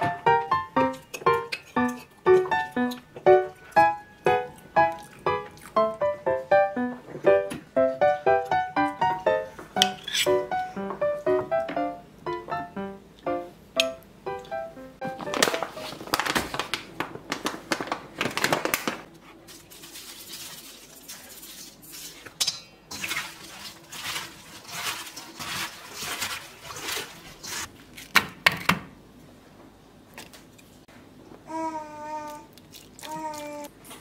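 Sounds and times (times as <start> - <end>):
cabbage leaves rustling in bowl: 15.1 - 22.2, 23.0 - 28.1.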